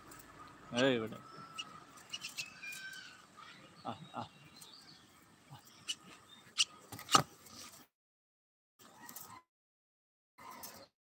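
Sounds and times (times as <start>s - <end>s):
birds chirping: 0.0s - 7.1s
faint outdoor background: 0.0s - 7.9s, 8.8s - 9.5s, 10.4s - 11.0s.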